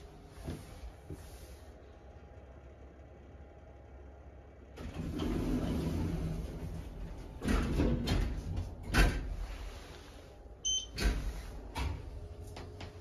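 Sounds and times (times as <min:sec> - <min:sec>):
faint elevator hum: 0:00.0 - 0:13.0
elevator doors clunking shut: 0:04.8 - 0:09.5, 0:10.6 - 0:13.0
short electronic beep: 0:10.6 - 0:10.9.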